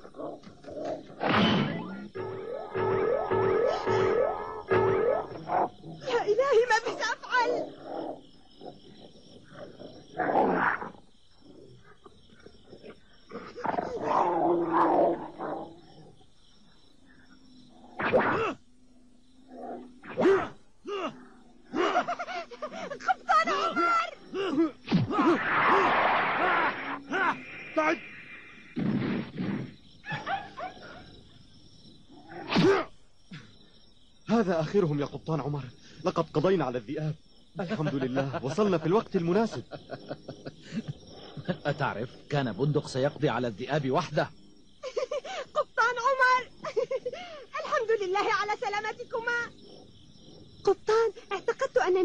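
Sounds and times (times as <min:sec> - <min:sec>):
cartoon wolves snarling and growling: 0:12.7 - 0:15.9, 0:24.4 - 0:27.4, 0:32.2 - 0:32.9
cartoon wolf snarling: 0:32.3 - 0:32.9.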